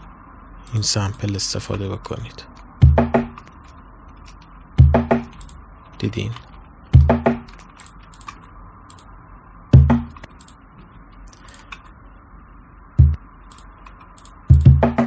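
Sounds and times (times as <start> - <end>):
deep cajon hits: 2.8 - 3.4, 4.8 - 5.3, 6.9 - 7.5, 9.8 - 10.2, 13.0 - 13.2, 14.5 - 15.0
computer mouse clicks: 5.3 - 6.6, 7.5 - 9.1, 10.1 - 10.6, 11.2 - 12.0, 13.5 - 14.7.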